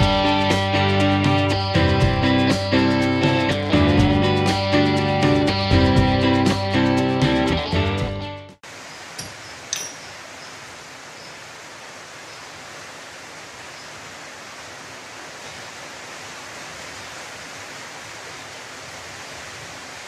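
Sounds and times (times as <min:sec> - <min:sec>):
rain hissing: 0:08.6 - 0:20.0.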